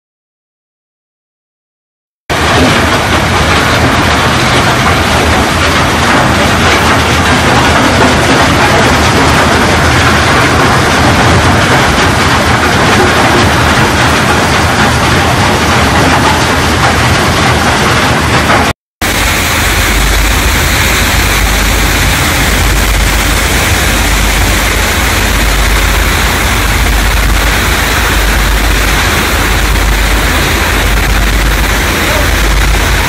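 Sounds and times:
loud machinery running: 2.3s - 33.0s
low hum: 19.0s - 33.0s.

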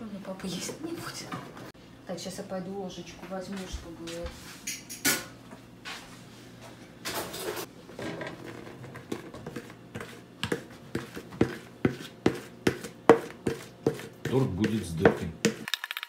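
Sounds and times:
spoon scraping plastic bowl: 8.0s - 15.8s.

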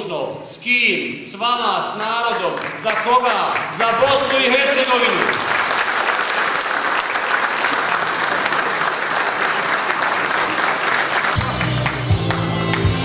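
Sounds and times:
audience applauding: 2.4s - 13.0s
music with steady bass: 11.4s - 13.0s.

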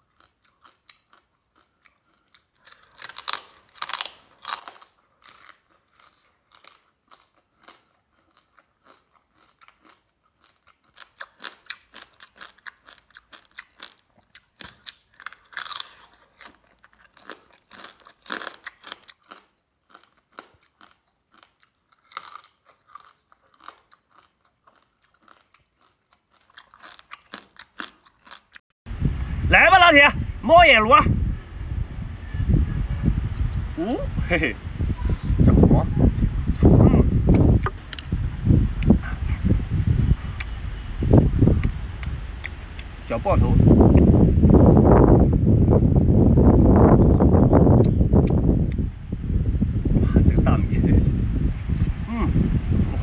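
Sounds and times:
crab shells crunching while chewing: 0.0s - 28.6s.

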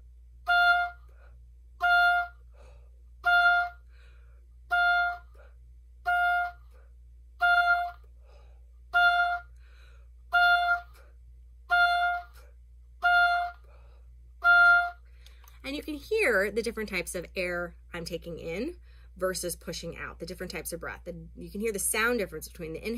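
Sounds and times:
oboe playing short notes: 0.4s - 2.6s, 3.2s - 3.9s, 4.7s - 6.8s, 7.4s - 8.1s, 8.9s - 9.6s, 10.3s - 11.1s, 11.7s - 13.7s, 14.4s - 15.1s
faint breaths: 3.8s - 4.6s, 9.5s - 10.2s, 18.8s - 19.2s.

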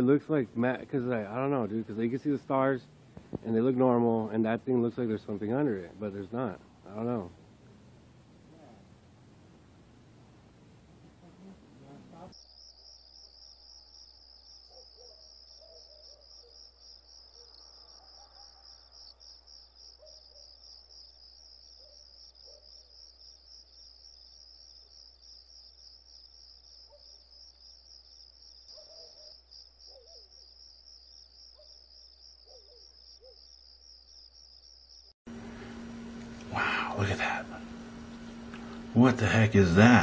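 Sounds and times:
crickets chirping: 0.0s - 40.0s
low steady hum: 0.1s - 12.3s, 35.3s - 40.0s
faint short calls: 35.3s - 40.0s.

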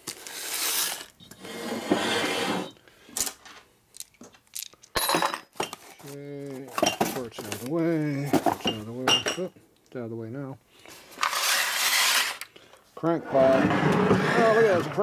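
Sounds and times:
metal parts clinking: 3.9s - 5.9s
cardboard boxes rustling: 5.8s - 8.9s.

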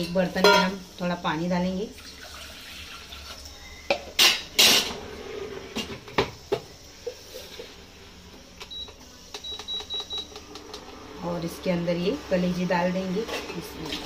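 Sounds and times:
metal pot clanking: 0.0s - 0.8s
water pouring into pot: 1.9s - 3.6s.

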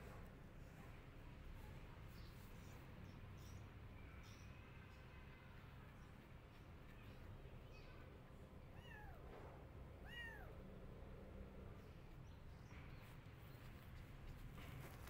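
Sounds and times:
kitten meowing: 8.7s - 9.2s, 10.0s - 10.6s.

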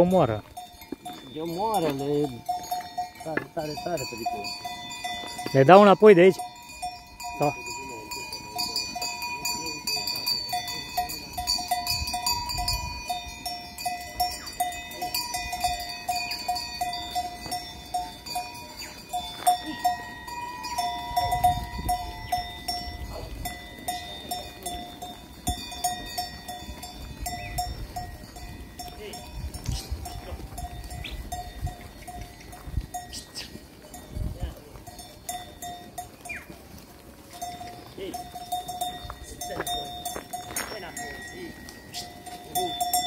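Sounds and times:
sheep bells clanking: 0.0s - 43.0s.

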